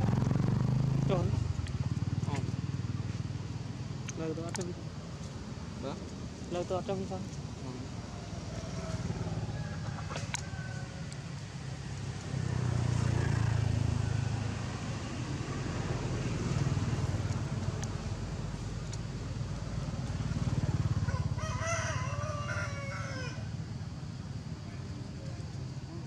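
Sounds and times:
low engine rumble: 0:00.0 - 0:22.5
rooster crowing: 0:08.1 - 0:11.2, 0:21.0 - 0:23.6.

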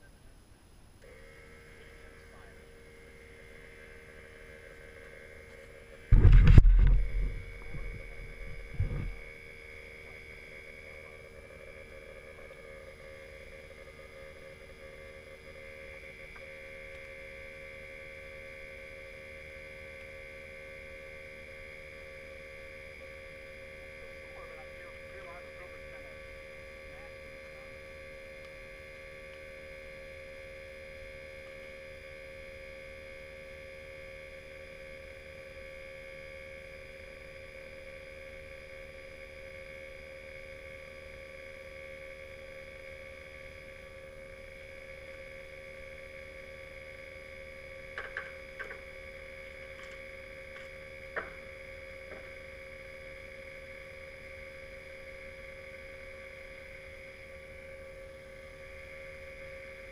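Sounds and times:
steady hum of even tones: 0:00.0 - 0:59.9.

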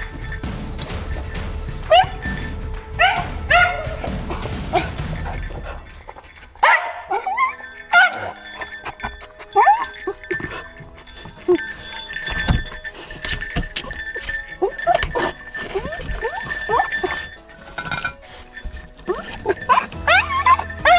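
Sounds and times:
background music: 0:00.0 - 0:20.9
dog barking: 0:01.9 - 0:02.3, 0:03.0 - 0:04.0, 0:06.6 - 0:08.7, 0:19.1 - 0:20.9.

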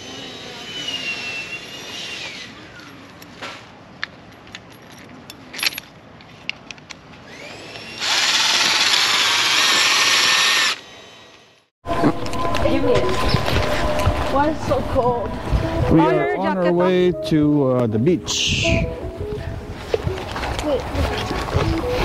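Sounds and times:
cordless drill motor whining: 0:00.0 - 0:02.9, 0:07.2 - 0:11.6.

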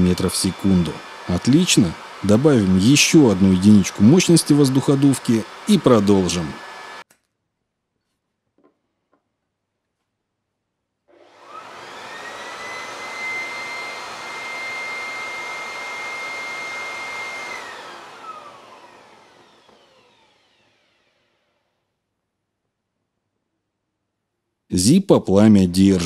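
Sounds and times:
air blower whining: 0:00.0 - 0:07.1, 0:11.1 - 0:21.6.

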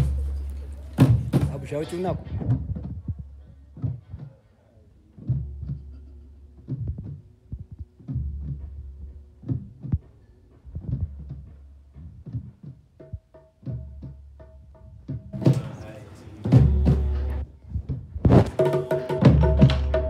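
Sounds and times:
deep bass drum thumps: 0:16.4 - 0:18.6.

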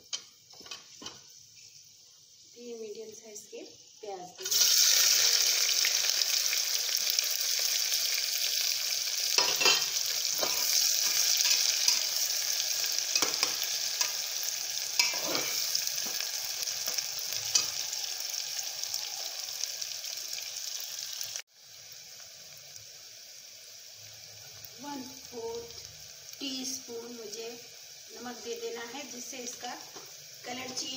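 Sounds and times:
faint hiss: 0:00.0 - 0:06.2, 0:09.0 - 0:30.9
onions sizzling in oil: 0:00.0 - 0:30.9
spoon scraping and knocking pan: 0:09.4 - 0:12.1, 0:13.1 - 0:14.2, 0:15.0 - 0:16.2.

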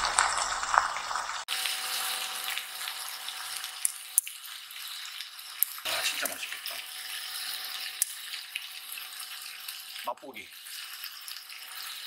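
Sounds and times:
crackles and pops: 0:00.0 - 0:01.7
meat sizzling in a pan: 0:00.0 - 0:12.0.

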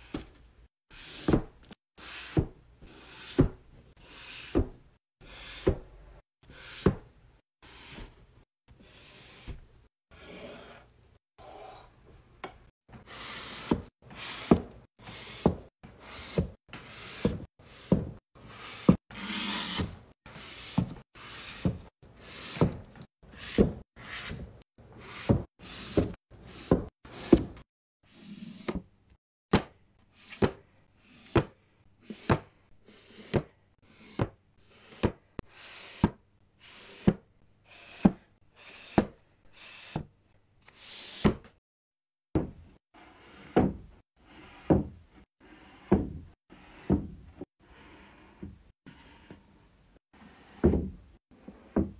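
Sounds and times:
book sliding scrape: 0:13.0 - 0:27.6.

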